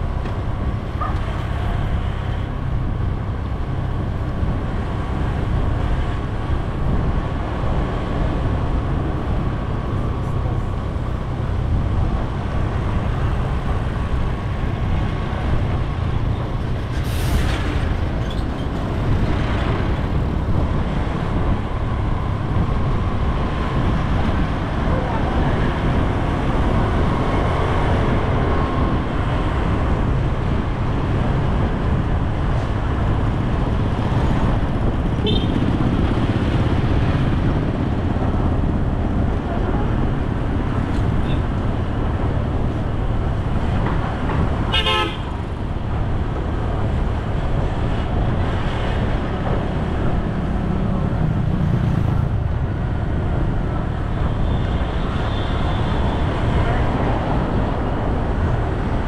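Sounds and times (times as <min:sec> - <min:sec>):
low traffic rumble: 0:00.0 - 0:59.0
motorbikes passing: 0:33.0 - 0:59.0.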